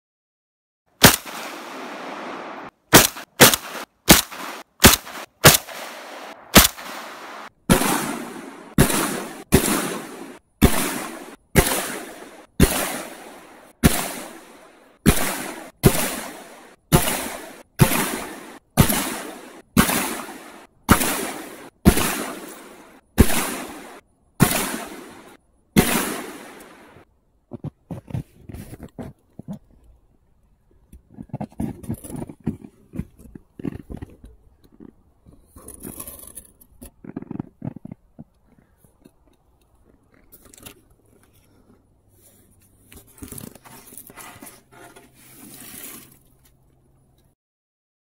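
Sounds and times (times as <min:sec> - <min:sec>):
shotgun shots with echo: 0:01.0 - 0:27.0.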